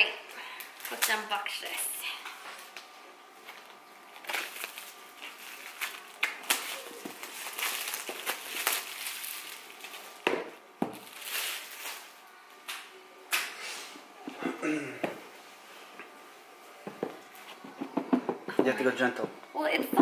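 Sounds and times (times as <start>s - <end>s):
plastic shrink wrap crinkling: 0.6s - 1.7s, 2.6s - 12.6s.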